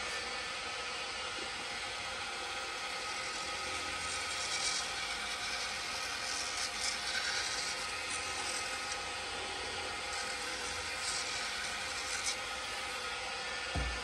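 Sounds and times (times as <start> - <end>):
wood lathe motor whine: 0.0 - 14.0
towel rubbing on spinning wood: 3.2 - 13.1.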